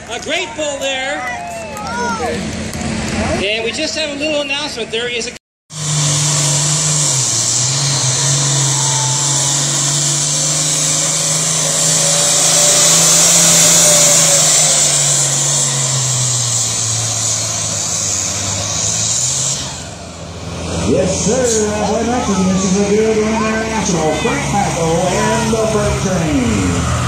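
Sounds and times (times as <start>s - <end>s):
tractor diesel engine under load: 5.7s - 27.0s.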